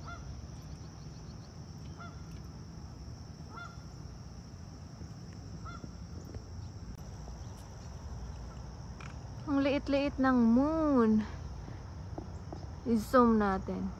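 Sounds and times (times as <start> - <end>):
geese honking: 0.0 - 0.3, 2.0 - 2.3, 3.5 - 3.8
crickets chirring: 0.0 - 13.9.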